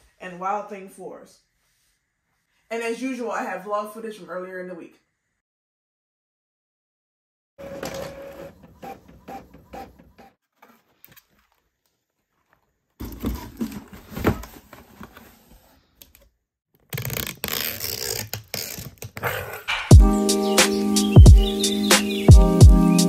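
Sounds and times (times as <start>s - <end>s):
printer mechanical pulses: 7.6s - 10.4s
cardboard box rustling and knocks: 13.0s - 15.2s
packing tape run over box: 16.8s - 19.6s.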